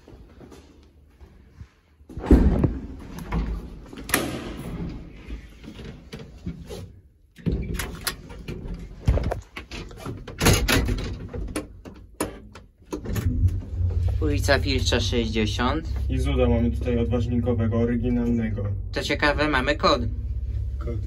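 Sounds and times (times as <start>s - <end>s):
lift doors clunking and banging: 7.4s - 14.1s.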